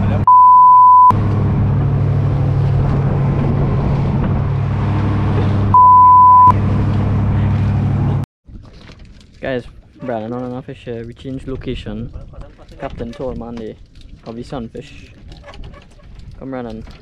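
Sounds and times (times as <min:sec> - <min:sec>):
boat engine droning: 0:00.0 - 0:08.2
censor bleep: 0:00.3 - 0:01.1, 0:05.8 - 0:06.6.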